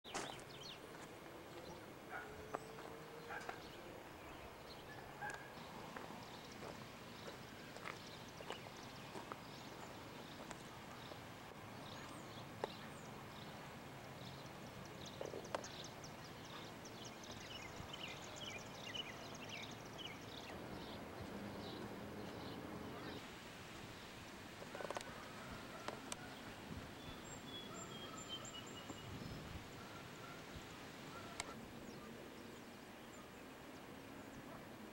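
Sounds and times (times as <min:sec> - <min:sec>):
small birds chirping: 0:00.1 - 0:23.2, 0:24.6 - 0:34.6
low background noise: 0:00.1 - 0:34.9.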